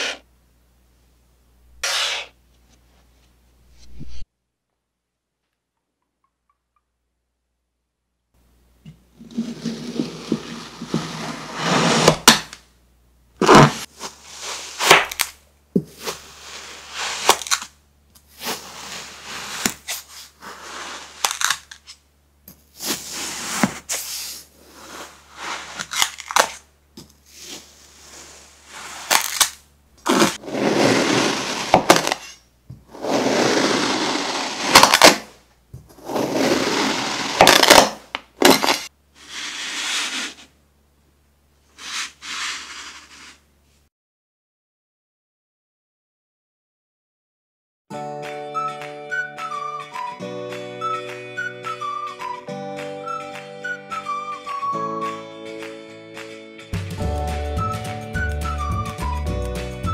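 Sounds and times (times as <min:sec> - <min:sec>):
knife cutting sand crunching: 0:01.8 - 0:02.3, 0:28.8 - 0:32.3
sand slab cracking: 0:13.4 - 0:17.7, 0:18.4 - 0:21.7, 0:27.3 - 0:35.4.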